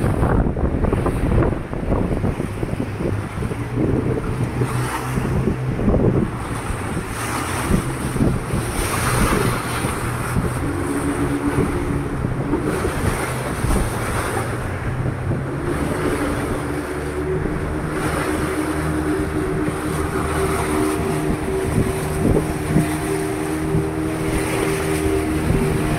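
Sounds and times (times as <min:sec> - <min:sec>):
boat motor running: 0:00.0 - 0:25.9
rushing river water: 0:00.0 - 0:25.9
wind on microphone: 0:00.0 - 0:25.9.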